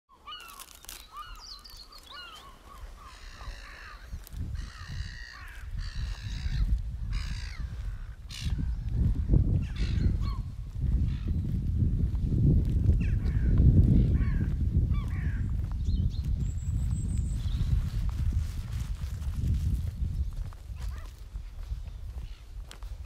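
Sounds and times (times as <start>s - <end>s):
short high bird calls: 0.1s - 7.7s
crows cawing: 0.2s - 8.7s, 13.0s - 15.6s.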